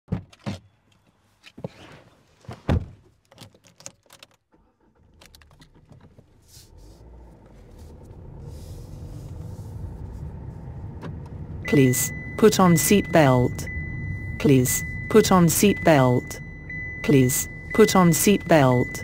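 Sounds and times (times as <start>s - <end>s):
car door and seat thunks: 1.5s - 3.8s, 10.8s - 11.4s
car engine running: 4.7s - 19.0s.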